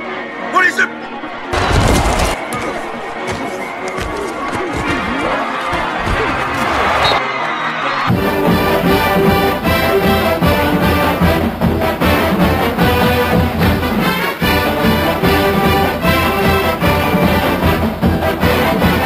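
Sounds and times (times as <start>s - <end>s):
brass-led orchestral theme music: 6.6s - 19.0s.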